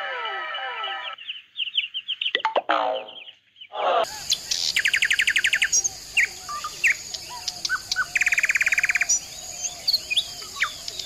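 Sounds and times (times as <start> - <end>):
birds chirping: 0.0 - 11.0
steady high hiss: 4.1 - 11.0.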